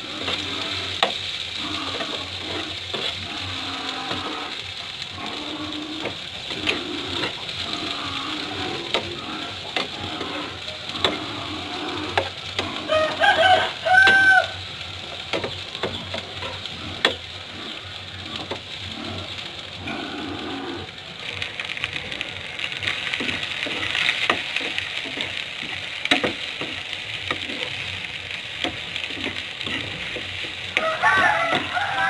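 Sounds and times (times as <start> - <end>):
food sizzling in oil: 0.0 - 32.0.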